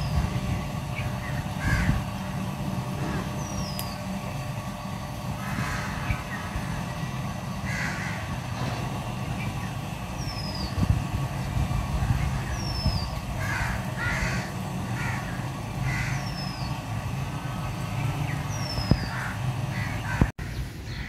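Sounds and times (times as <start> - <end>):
steady low hum: 0.0 - 21.0
crows cawing: 1.6 - 2.1, 5.4 - 6.7, 7.6 - 8.5, 13.3 - 16.6, 19.0 - 20.3.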